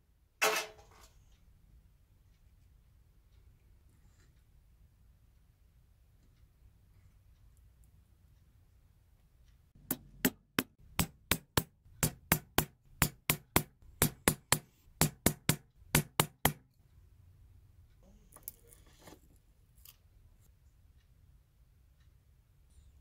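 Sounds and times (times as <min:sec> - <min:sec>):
hammer tapping a metal punch: 0:09.8 - 0:16.6.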